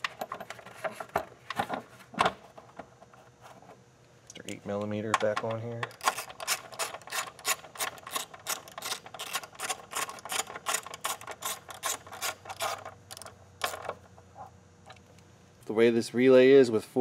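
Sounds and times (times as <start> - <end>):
hand ratchet clicking: 5.3 - 14.0.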